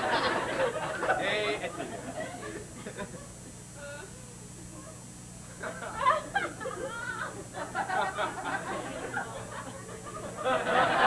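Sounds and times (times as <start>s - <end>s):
audience laughing: 0.0s - 3.4s, 5.6s - 11.0s.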